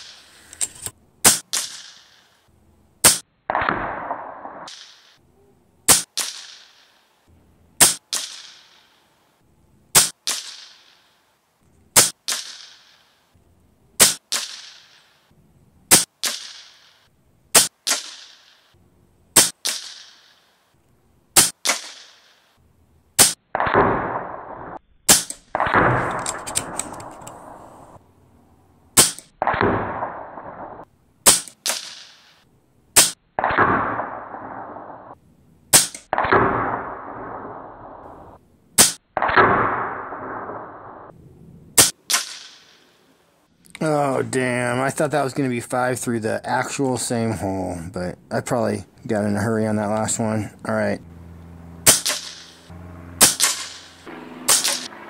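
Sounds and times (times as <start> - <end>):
rustling noise: 0.0 - 1.0
air rifle shots cracking: 0.0 - 5.2, 5.9 - 7.1, 7.8 - 9.1, 9.9 - 11.2, 11.9 - 13.4, 14.0 - 15.3, 15.9 - 20.6, 21.4 - 22.6, 23.2 - 28.0, 28.9 - 30.6, 31.2 - 35.0, 35.7 - 37.7, 38.8 - 40.8, 41.8 - 43.1, 51.8 - 55.0.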